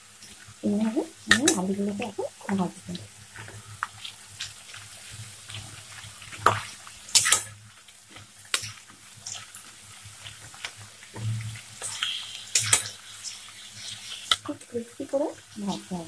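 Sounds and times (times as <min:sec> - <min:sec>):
potato slices sizzling in oil: 0:00.0 - 0:16.0.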